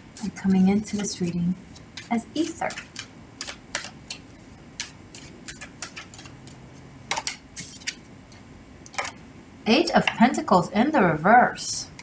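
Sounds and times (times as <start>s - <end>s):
cards being shuffled: 0.9s - 4.2s, 7.1s - 8.0s.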